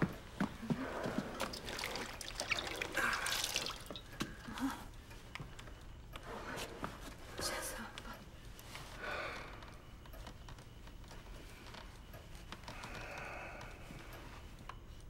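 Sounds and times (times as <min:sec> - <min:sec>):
water splashing in a washbasin: 0:00.9 - 0:04.5.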